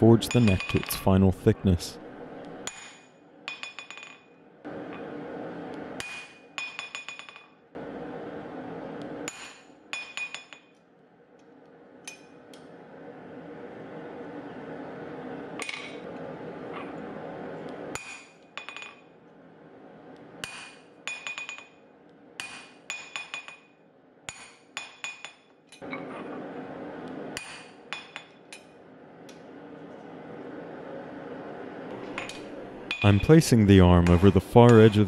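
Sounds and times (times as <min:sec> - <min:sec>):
hammer striking metal tool: 0:00.3 - 0:01.0, 0:32.2 - 0:33.4, 0:34.0 - 0:35.0.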